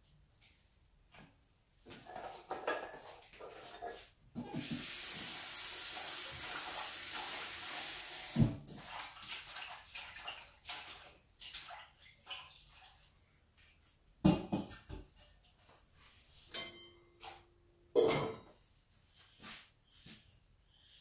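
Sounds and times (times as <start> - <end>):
tap running into sink: 4.4 - 7.5
clinks and knocks in sink: 14.2 - 15.3, 18.0 - 18.6.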